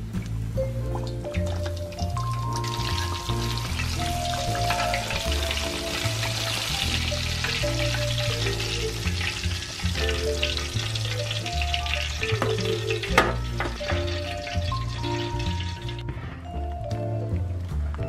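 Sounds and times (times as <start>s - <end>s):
fish deep-frying in hot oil: 0.0s - 16.1s
background music with bass line: 0.0s - 18.0s.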